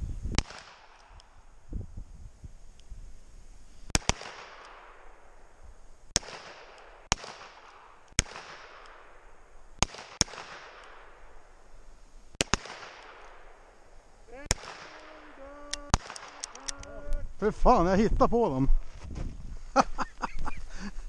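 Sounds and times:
handgun shots with echo: 14.5s - 15.1s.

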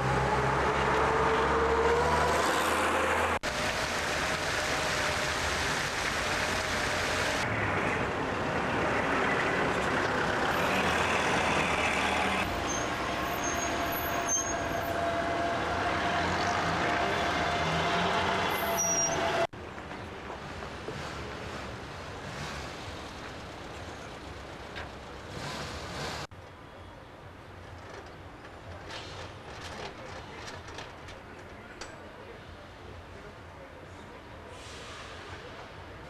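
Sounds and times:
bus engine passing: 0.0s - 19.5s
street traffic: 0.0s - 36.0s.

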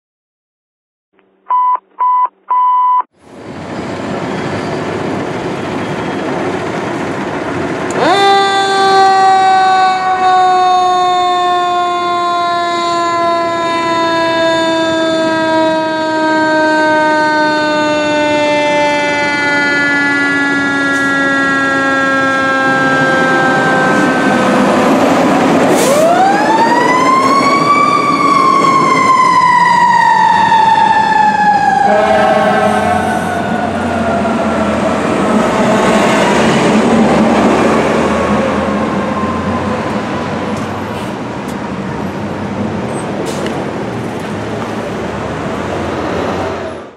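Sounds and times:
fire engine siren wailing: 7.6s - 42.2s
low rumble of engine and traffic: 31.4s - 46.9s.

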